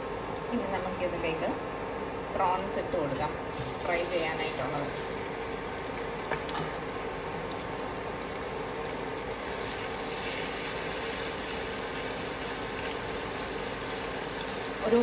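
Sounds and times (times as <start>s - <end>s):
prawns sizzling in oil: 3.5s - 15.0s
oil popping: 4.9s - 14.9s.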